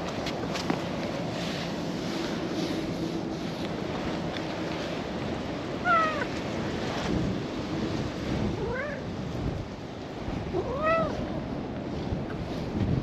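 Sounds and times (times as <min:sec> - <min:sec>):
wind noise on microphone: 0:00.0 - 0:13.0
cat meowing: 0:05.8 - 0:06.3, 0:10.6 - 0:11.2.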